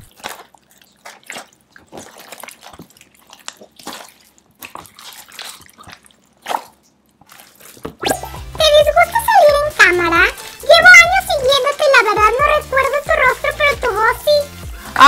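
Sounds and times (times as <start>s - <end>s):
slime squelching and popping: 0.0s - 8.8s.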